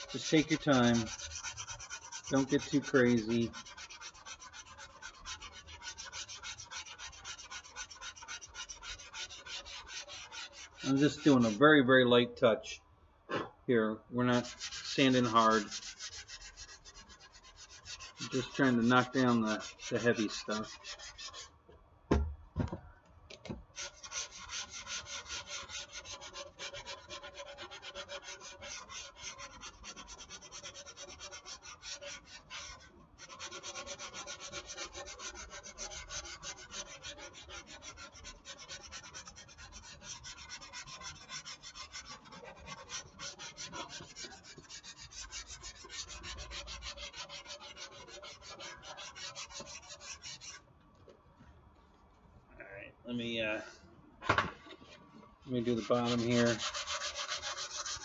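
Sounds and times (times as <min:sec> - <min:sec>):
sandpaper rubbing back and forth: 0:00.0 - 0:11.7, 0:14.3 - 0:21.5, 0:23.7 - 0:50.6, 0:55.5 - 0:58.0.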